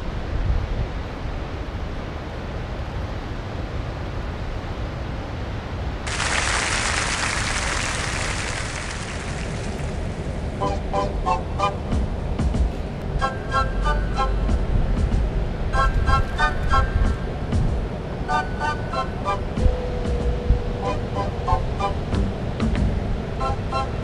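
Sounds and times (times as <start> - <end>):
wind rumbling on microphone: 0.0 - 13.2, 14.0 - 24.0
steady hiss: 1.1 - 24.0
surf breaking on rocky shore: 6.0 - 10.7.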